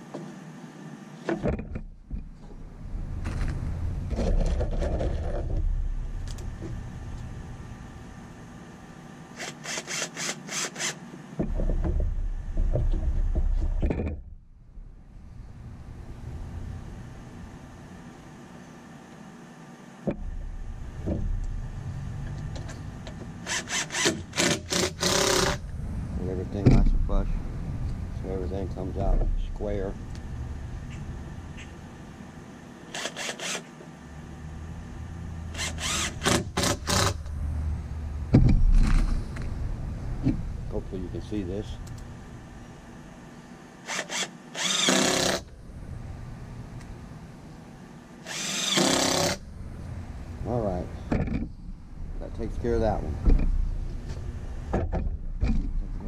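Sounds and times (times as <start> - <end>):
cordless drill driving screws: 9.4 - 11.0, 23.4 - 25.6, 32.9 - 33.7, 35.5 - 37.2, 43.8 - 45.5, 48.2 - 49.4.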